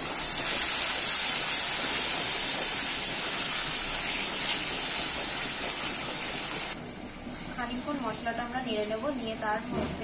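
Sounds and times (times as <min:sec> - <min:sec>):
spice paste sizzling in oil: 0:00.0 - 0:06.8.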